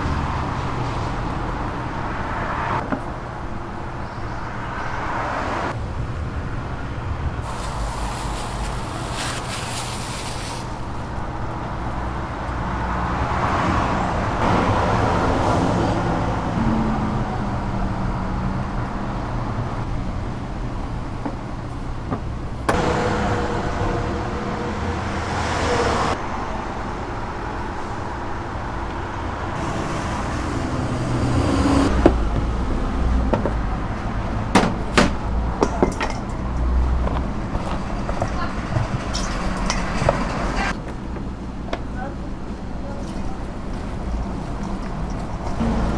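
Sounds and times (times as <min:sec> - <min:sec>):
rustling in flour: 0:07.4 - 0:11.0.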